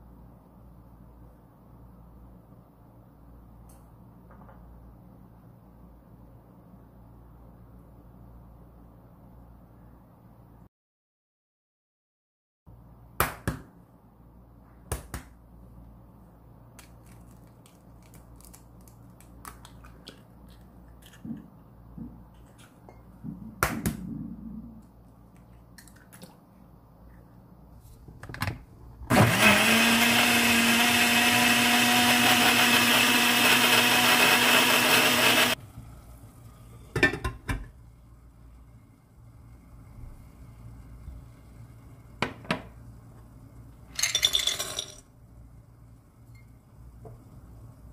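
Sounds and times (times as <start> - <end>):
hand blender droning: 29.1 - 35.6.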